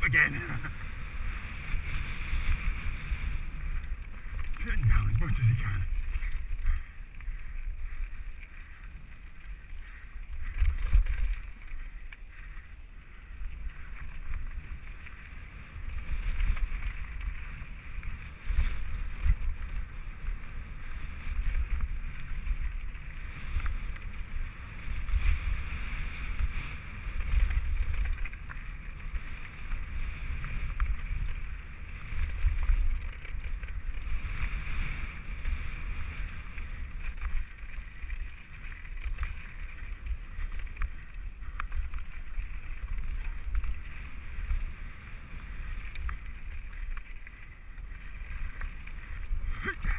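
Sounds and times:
tyres hissing on gravel: 0.0 - 10.6
wind rumble on microphone: 0.0 - 49.9.

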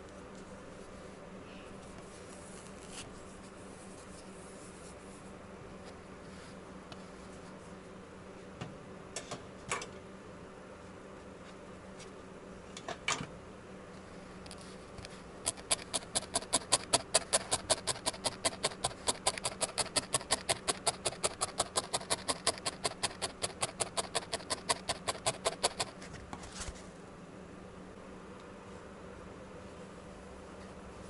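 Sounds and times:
felting needle poking: 15.4 - 25.9.

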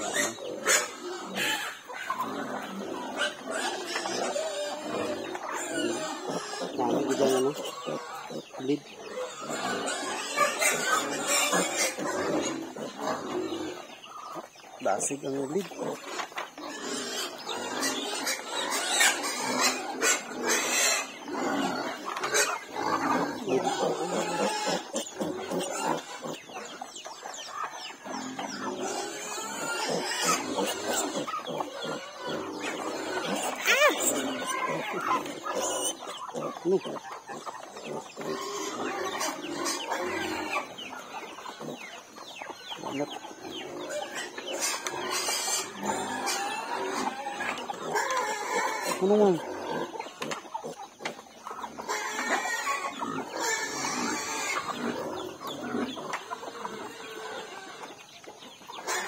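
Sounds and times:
piglet squealing: 0.0 - 13.8, 15.8 - 26.3, 28.8 - 37.5
chickens clucking: 0.0 - 59.0.

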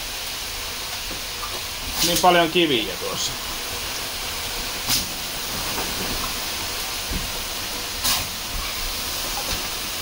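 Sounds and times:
water hissing on hot stones: 0.0 - 10.0.

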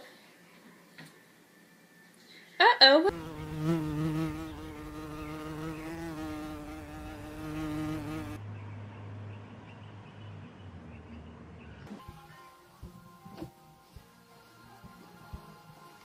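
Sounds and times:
flying insect buzzing: 3.1 - 8.4.

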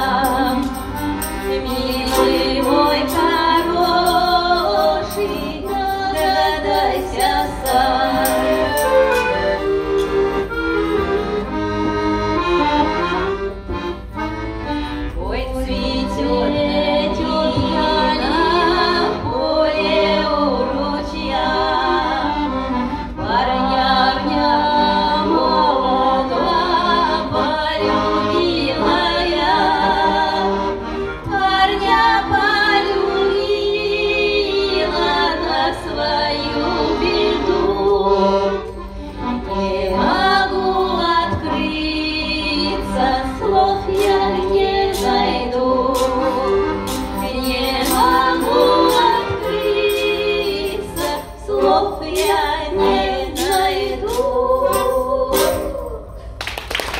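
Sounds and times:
tambourine jingling: 0.0 - 9.8, 46.0 - 56.1
women singing: 0.0 - 10.6, 15.1 - 56.3
accordion: 0.0 - 56.4.

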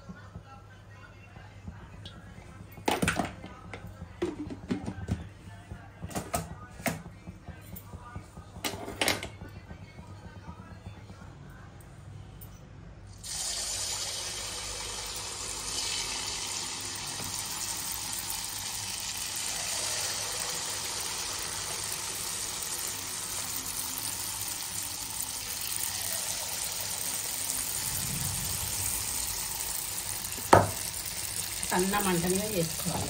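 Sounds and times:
batter sizzling in hot oil: 13.2 - 33.0.

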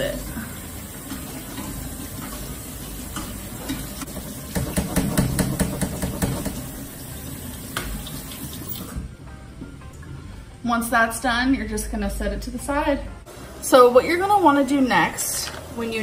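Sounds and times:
tap water running into sink: 0.0 - 9.0
strainer knocking and rattling: 4.5 - 6.7.

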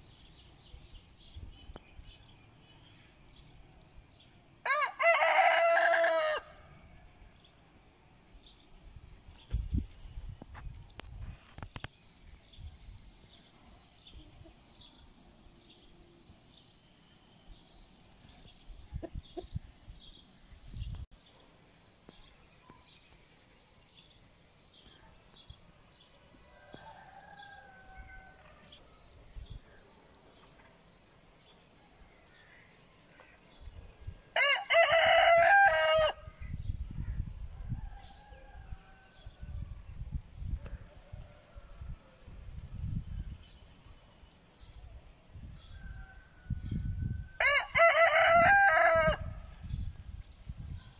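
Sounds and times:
rooster crowing: 4.6 - 6.7, 26.6 - 28.6, 34.4 - 36.3, 45.9 - 49.4.

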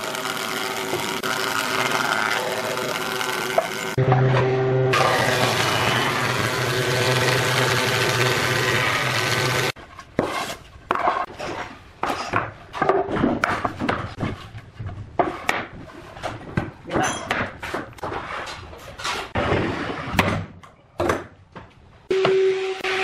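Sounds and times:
planer machine shaving wood: 0.0 - 4.2, 4.9 - 9.8.

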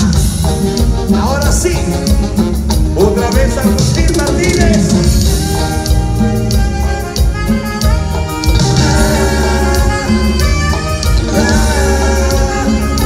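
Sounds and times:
drum kit steady beat: 0.0 - 13.0
live band playing romantic song: 0.0 - 13.0
person singing lead vocal: 3.0 - 6.4, 8.6 - 13.0.

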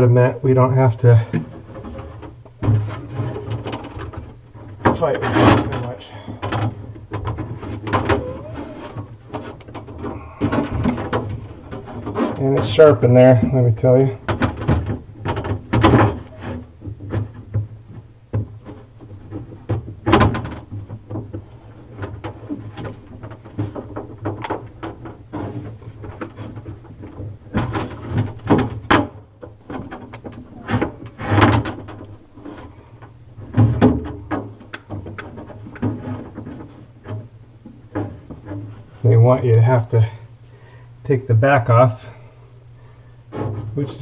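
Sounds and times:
steady low hum: 0.0 - 44.0
plastic clicks and knocks: 14.2 - 38.8.

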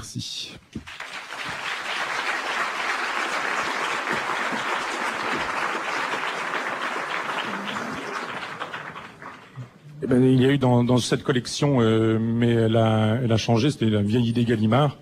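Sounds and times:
audience applauding: 0.8 - 9.8.

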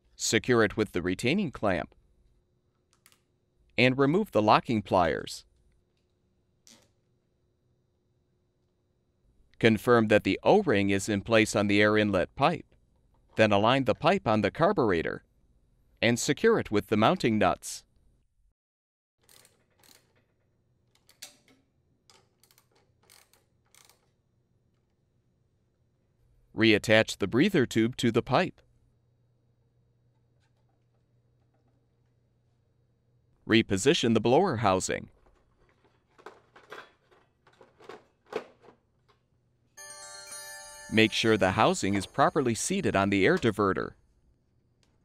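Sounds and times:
background music tones: 39.8 - 43.4.

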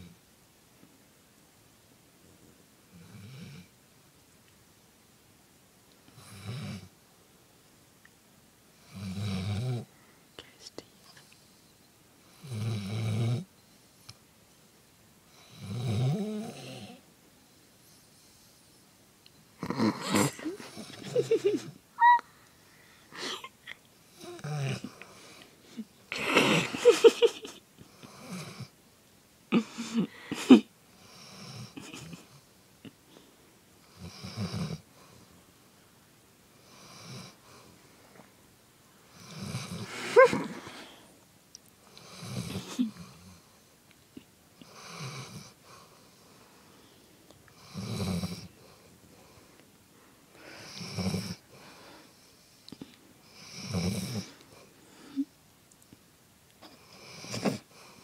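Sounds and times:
dog snoring: 8.8 - 9.9, 12.2 - 13.5, 15.3 - 17.0, 19.6 - 21.2, 24.2 - 25.0, 28.0 - 28.7, 33.8 - 35.2, 36.6 - 37.7, 39.1 - 40.5, 41.9 - 43.4, 44.6 - 46.1, 47.6 - 49.4, 50.6 - 51.5, 53.2 - 54.7, 56.7 - 58.0.

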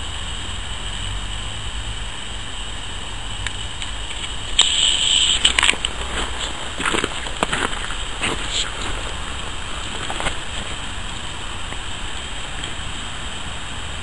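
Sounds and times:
burst of crackling noise: 0.8 - 14.0
sharp clicks: 3.4 - 6.0.

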